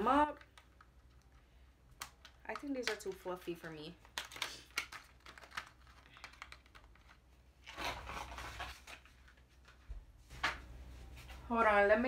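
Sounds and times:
plastic tray clicks and crinkles: 0:00.4 - 0:07.2.

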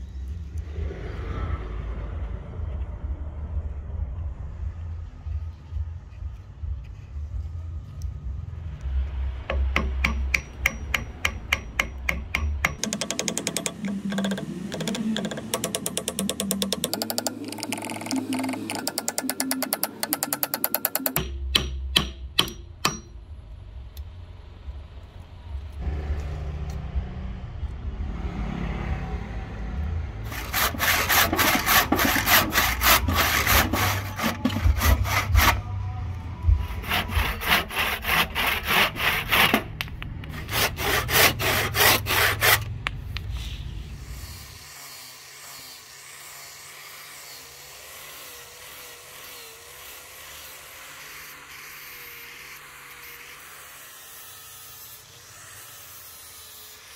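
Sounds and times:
handsaw sawing wood: 0:09.5 - 0:23.1, 0:30.2 - 0:35.7, 0:36.5 - 0:42.7, 0:44.1 - 0:56.9
electric sander hiss: 0:43.2 - 0:56.9.

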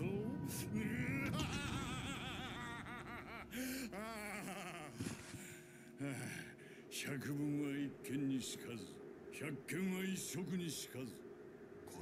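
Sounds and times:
man laughing: 0:00.9 - 0:06.3.

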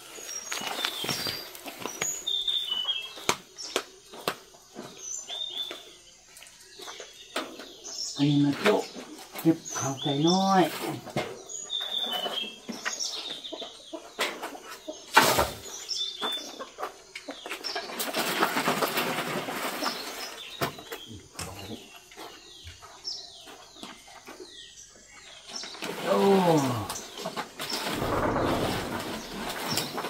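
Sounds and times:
chicks peeping: 0:00.0 - 0:30.0
rustling: 0:25.7 - 0:30.0.

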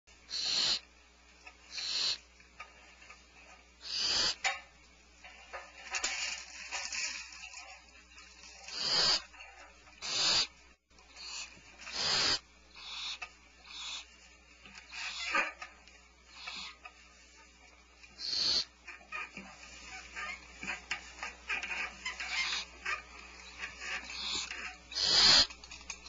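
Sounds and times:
owl nestlings hissing: 0:00.2 - 0:00.9, 0:01.6 - 0:02.3, 0:03.8 - 0:04.6, 0:08.4 - 0:15.6, 0:16.2 - 0:25.8.

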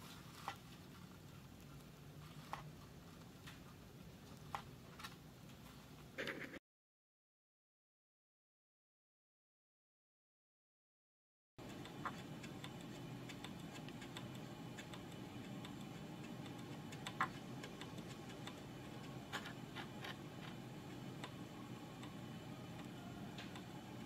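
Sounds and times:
faint irregular clicks: 0:11.6 - 0:24.0
steady low hum: 0:11.6 - 0:24.0.

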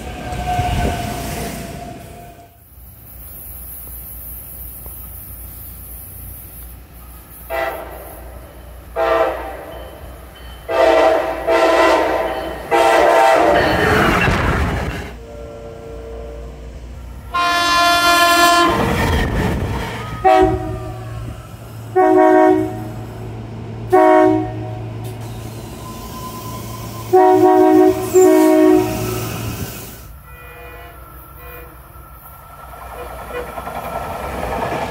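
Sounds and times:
train passing close by: 0:00.0 - 0:34.9
train horn blasts: 0:07.5 - 0:10.0, 0:10.6 - 0:14.1, 0:15.2 - 0:19.0, 0:20.1 - 0:21.3, 0:21.9 - 0:23.1, 0:23.9 - 0:24.9, 0:26.2 - 0:29.4, 0:30.2 - 0:31.9.

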